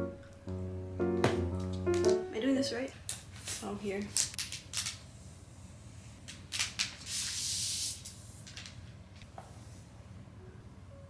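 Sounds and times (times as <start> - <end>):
plastic sheet crinkling: 3.0 - 5.0
sheet sliding off with hiss: 7.0 - 8.4.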